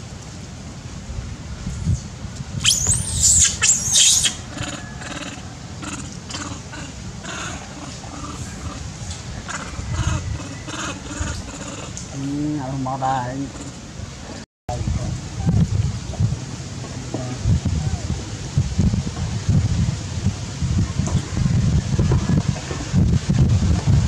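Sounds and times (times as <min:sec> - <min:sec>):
monkey squeals and chatter: 0:02.6 - 0:08.8, 0:09.5 - 0:12.0
monkeys screaming: 0:02.6 - 0:12.0, 0:13.4 - 0:13.9.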